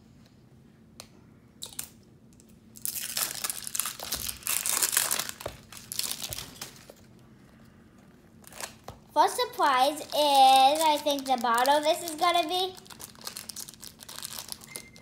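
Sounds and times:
plastic wrapping crinkling and tearing: 2.8 - 7.1, 8.4 - 8.9, 9.6 - 15.0.

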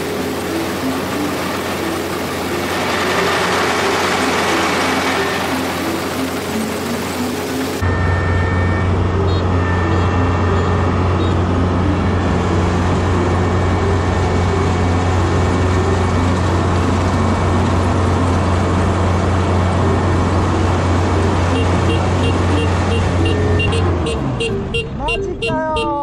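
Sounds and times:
machinery noise: 0.0 - 25.2
combine harvester engine drone: 0.0 - 25.8.

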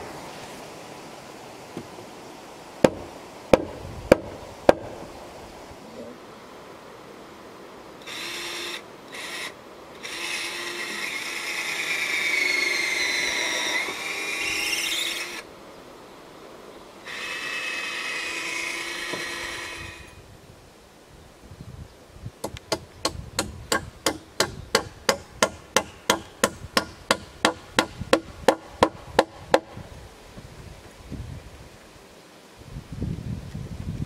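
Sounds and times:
hammer striking timber: 2.8 - 5.0, 22.4 - 29.8
cordless drill whining: 8.0 - 15.4, 17.0 - 20.2.

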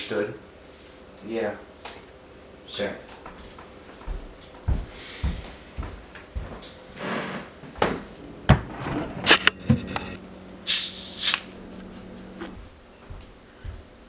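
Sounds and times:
plastic bottle cap crackling: 11.2 - 11.9.

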